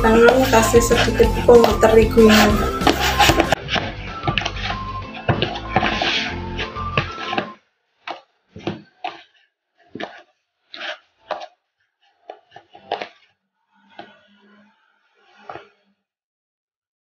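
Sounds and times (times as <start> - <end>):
dough thumping and slapping: 0.2 - 9.3.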